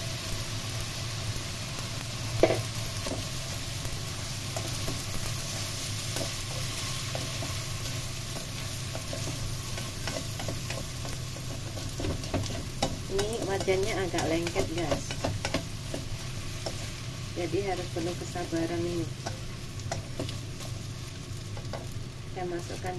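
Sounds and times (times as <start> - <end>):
food sizzling in frying pan: 0.0 - 22.9
spatula scraping pan: 4.6 - 22.0.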